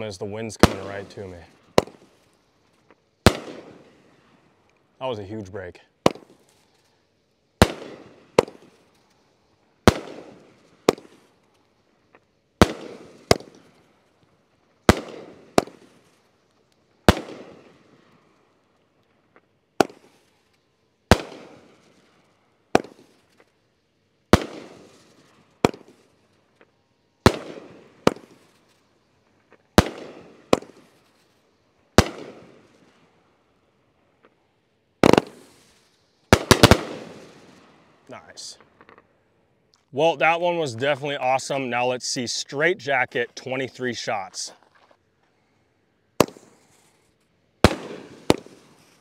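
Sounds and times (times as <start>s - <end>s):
firework bangs: 0.0s - 2.4s, 3.2s - 5.3s, 6.0s - 7.0s, 7.6s - 11.6s, 12.6s - 14.1s, 14.8s - 16.3s, 17.0s - 18.4s, 19.4s - 20.5s, 21.1s - 23.6s, 24.3s - 26.4s, 27.2s - 28.8s, 29.4s - 33.0s, 35.0s - 39.1s, 46.2s - 49.0s
smaller firework cracks: 0.0s - 40.6s, 43.5s - 49.0s.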